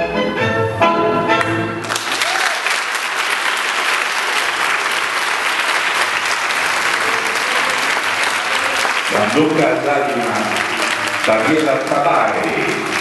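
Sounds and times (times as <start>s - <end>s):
recorded tango music: 0.0s - 2.0s, 5.8s - 13.0s
audience applause: 1.8s - 13.0s.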